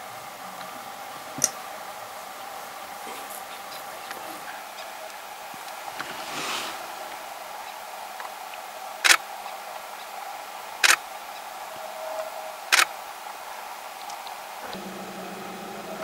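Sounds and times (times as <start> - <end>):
steady low hum: 13.3 - 16.0.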